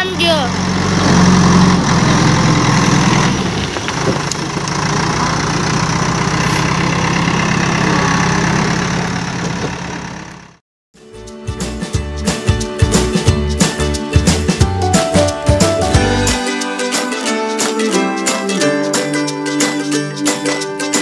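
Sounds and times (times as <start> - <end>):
diesel engine running: 0.0 - 10.6.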